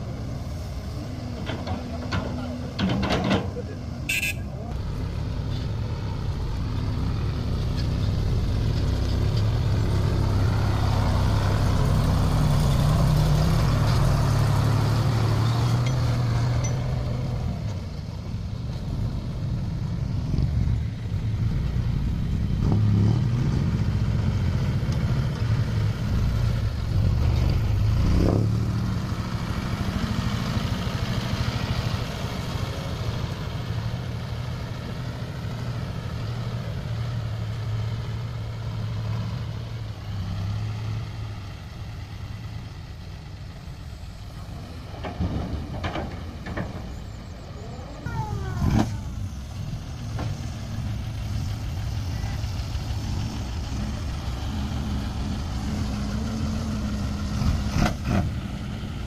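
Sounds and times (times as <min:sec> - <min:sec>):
truck diesel engine driving by: 0:00.0 - 0:59.0.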